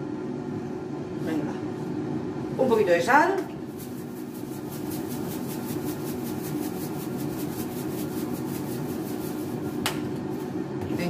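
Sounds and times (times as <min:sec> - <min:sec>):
air fryer fan humming: 0:00.0 - 0:11.0
scratchy salt dispensing strokes: 0:03.7 - 0:09.8.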